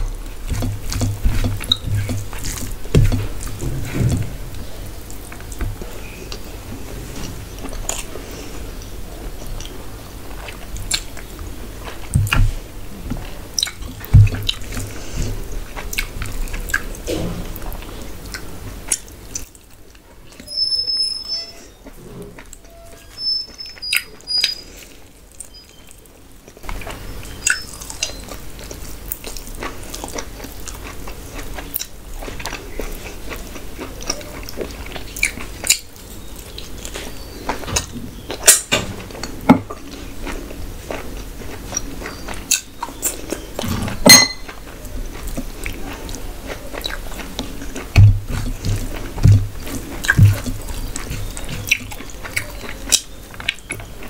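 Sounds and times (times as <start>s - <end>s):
chewing with wet mouth clicks: 0.0s - 3.8s, 10.4s - 12.5s, 13.2s - 17.0s, 18.2s - 20.5s, 25.3s - 54.0s.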